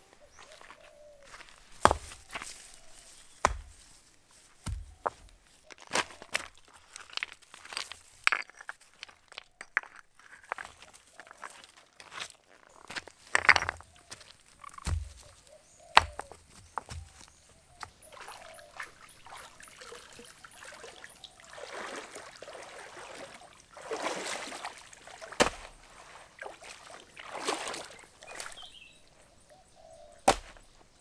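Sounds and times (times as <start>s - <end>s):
water sloshing and splashing: 16.8s - 29.2s.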